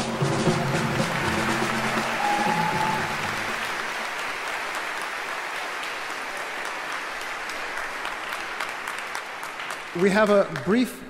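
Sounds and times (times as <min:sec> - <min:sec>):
music: 0:00.0 - 0:04.1
audience applauding: 0:00.0 - 0:10.9.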